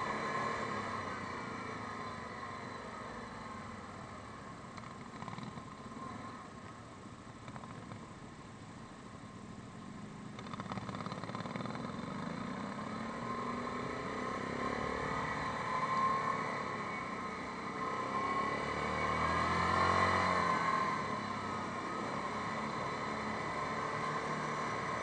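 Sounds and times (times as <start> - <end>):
atv engine accelerating: 10.3 - 25.0.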